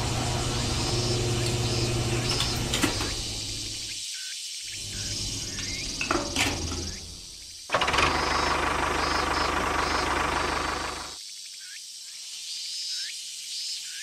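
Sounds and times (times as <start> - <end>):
motor clicks: 0.0 - 4.0, 4.7 - 11.2
small motor running: 0.0 - 4.0, 4.7 - 11.2.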